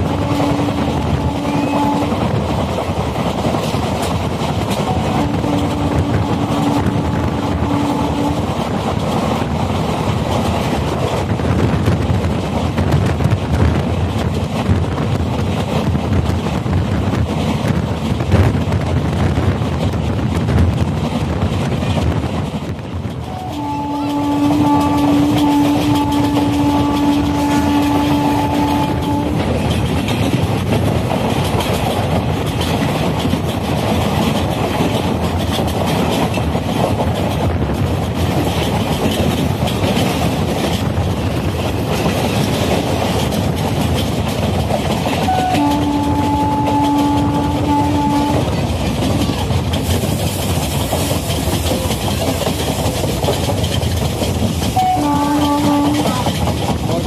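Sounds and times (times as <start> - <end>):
locomotive horn blast: 0.0 - 2.4, 4.8 - 8.6, 23.2 - 29.6, 45.2 - 48.7, 54.7 - 56.4
train wheels rushing on rails: 0.0 - 57.0.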